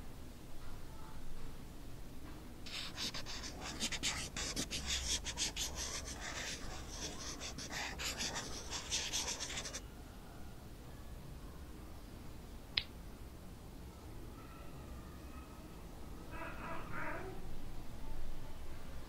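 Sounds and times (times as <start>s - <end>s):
marker pen scratching on paper: 2.7s - 9.8s.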